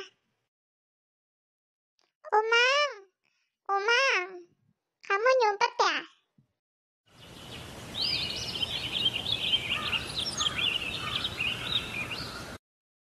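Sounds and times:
songbirds chirping: 7.1s - 12.6s
steady outdoor hiss: 7.1s - 12.6s.

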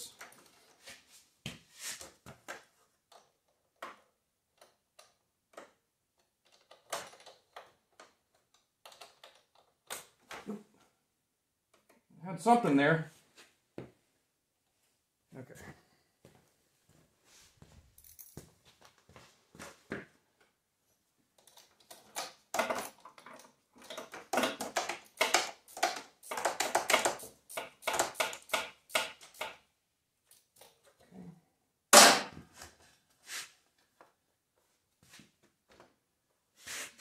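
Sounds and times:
hands handling clicks and rustles: 2.0s - 10.6s, 20.4s - 29.6s.

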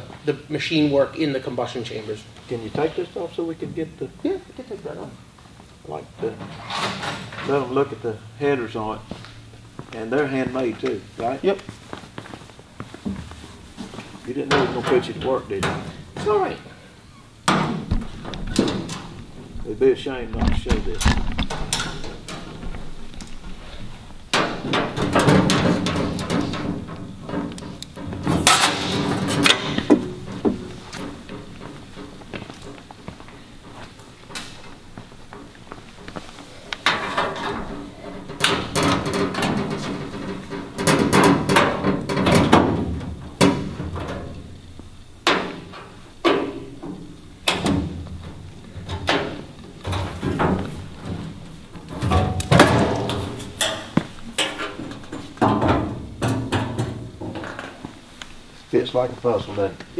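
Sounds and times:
metallic knocks and clanks: 24.3s - 32.9s, 36.8s - 44.6s, 45.2s - 57.8s.

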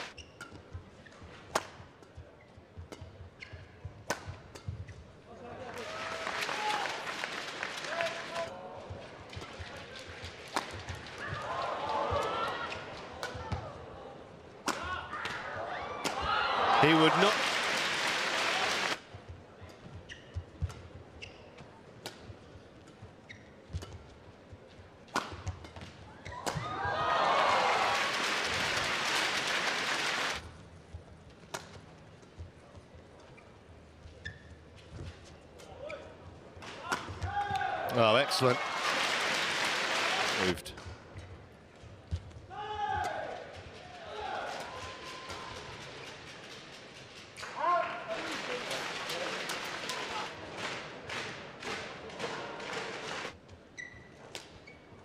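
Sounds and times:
shoes squeaking on court: 0.0s - 1.4s, 19.7s - 21.8s, 22.8s - 24.1s, 32.4s - 36.1s, 53.5s - 55.0s
racket striking shuttlecock: 1.5s - 1.8s
racket hitting shuttlecock: 1.5s - 1.9s, 25.1s - 26.6s
crowd cheering and applauding: 5.7s - 8.5s, 16.6s - 19.0s, 27.0s - 30.4s, 37.9s - 40.6s.

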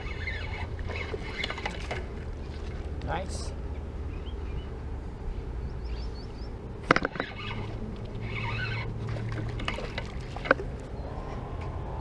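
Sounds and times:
fishing rod and reel clatter: 0.0s - 3.4s, 6.8s - 11.0s.

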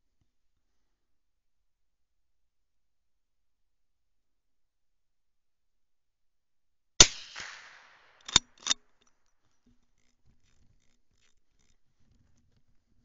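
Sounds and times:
rifle shot: 7.0s - 8.8s
sharp mechanical clicks: 8.2s - 8.8s.

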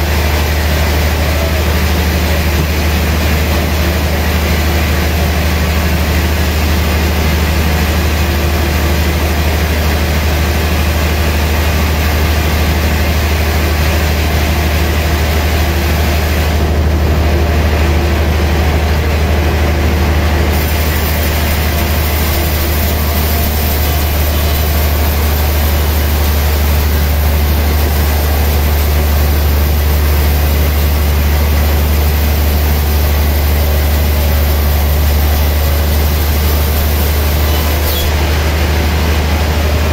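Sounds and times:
band saw motor hum: 19.9s - 39.9s
saw blade cutting log: 20.5s - 38.9s.

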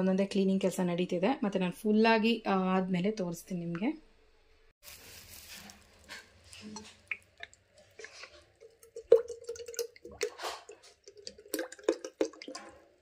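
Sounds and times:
oil pouring into steel jug: 5.1s - 13.0s.

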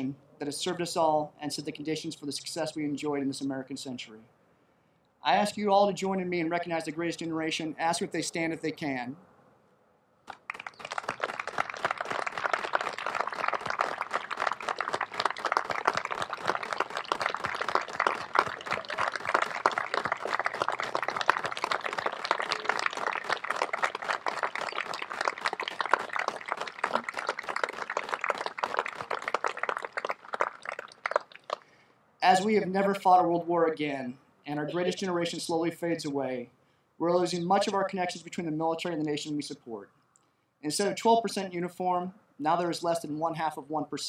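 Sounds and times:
crowd applauding: 10.3s - 31.7s.

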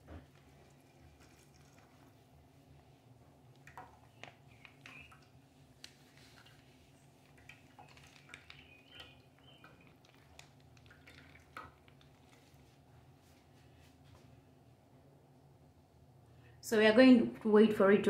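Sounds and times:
oil trickling into a pan: 0.2s - 2.5s, 3.5s - 12.9s.

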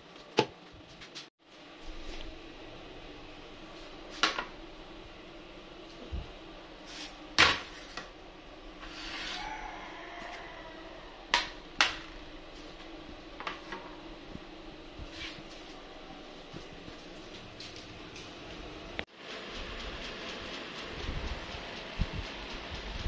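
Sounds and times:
tray scraping on counter: 8.8s - 9.4s.

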